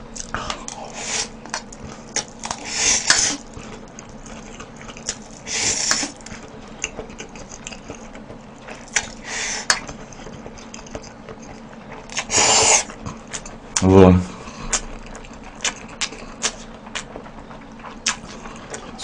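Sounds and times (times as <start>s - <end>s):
person slurping noodles: 12.2s - 12.9s.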